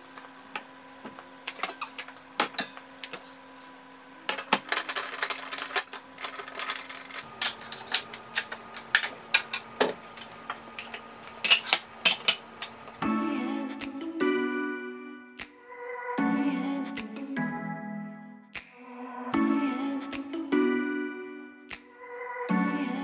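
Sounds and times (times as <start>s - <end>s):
kitchen items clicking and clattering: 4.2s - 12.8s.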